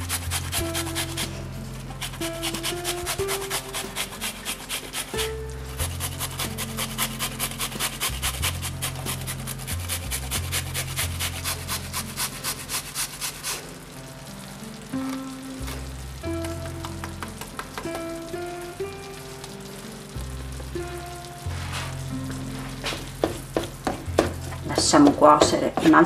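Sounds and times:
zucchini rasping on a grater: 0.0s - 13.8s
background music: 0.0s - 26.0s
sauce sizzling in a pan: 0.0s - 26.0s.

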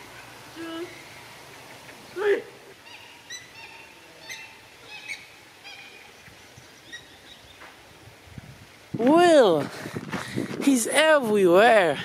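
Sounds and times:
birds chirping: 0.0s - 7.9s.

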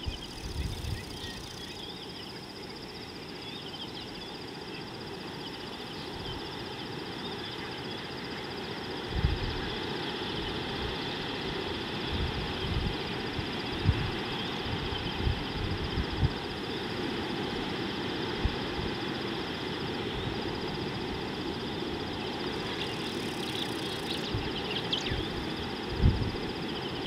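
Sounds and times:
steady hiss: 0.0s - 27.0s
faint chirps: 21.6s - 27.0s.

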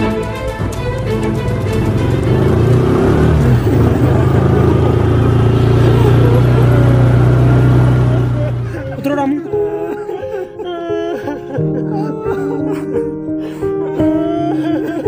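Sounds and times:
motorcycle engine running low: 0.9s - 8.9s.

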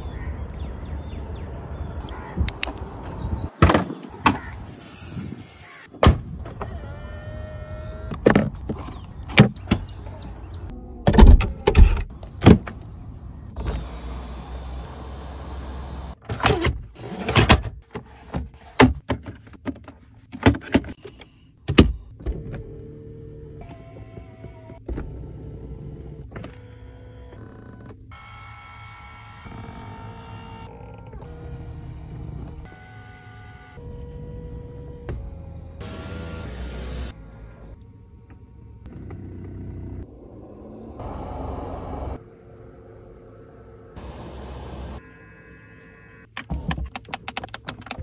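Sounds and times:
electric motors whirring: 6.6s - 8.2s, 22.7s - 37.8s.

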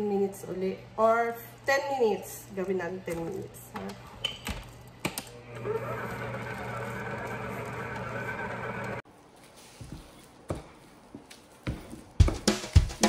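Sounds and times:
stand mixer motor running: 5.4s - 9.0s.

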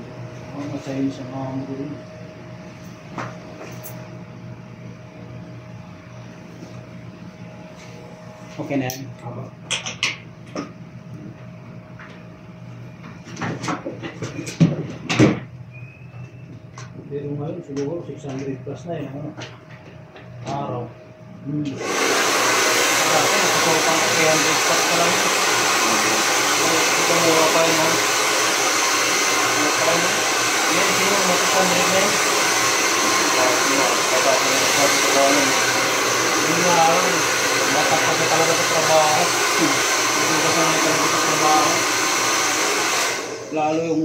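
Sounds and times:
hair dryer running: 0.0s - 12.2s, 21.5s - 44.0s
steady hum: 0.0s - 13.9s
clicks and knocks of barber tools: 9.7s - 10.7s.

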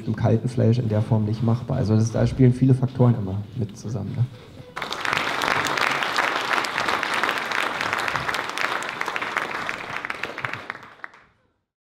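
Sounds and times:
audience applauding: 4.7s - 11.4s.

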